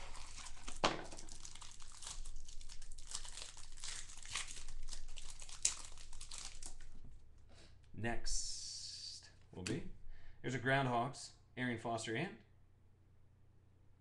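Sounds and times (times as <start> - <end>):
plastic card sleeves crinkling: 0.0 - 7.2.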